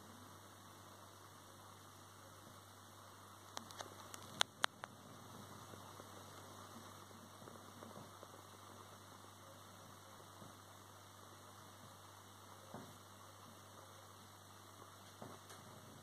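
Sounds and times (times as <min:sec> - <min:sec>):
microphone hum and hiss: 0:00.0 - 0:16.0.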